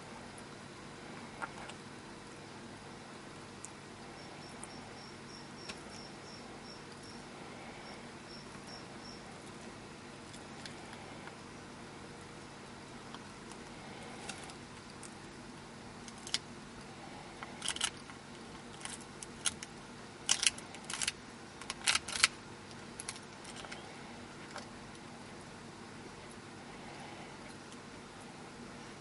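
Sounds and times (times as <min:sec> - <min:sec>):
eggshells cracking and crunching: 0:16.0 - 0:16.5, 0:17.4 - 0:23.8.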